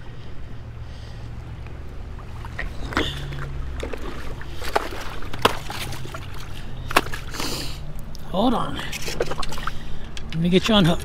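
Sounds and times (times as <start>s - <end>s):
steady low rumble: 0.0s - 11.0s
fish splashing in water: 2.0s - 7.8s, 9.0s - 10.0s.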